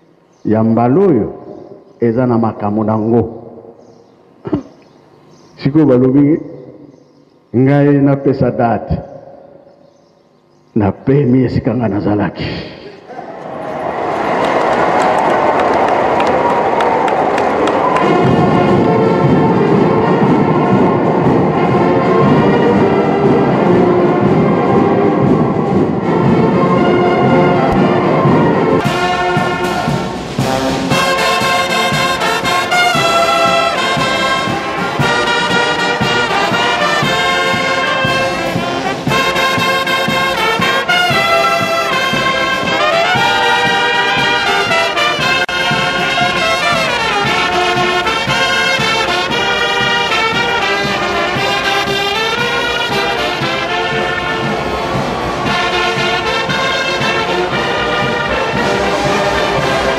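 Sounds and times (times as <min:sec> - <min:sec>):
brass band playing: 0:13.3 - 0:59.9
sliding brass notes: 0:13.3 - 0:59.9.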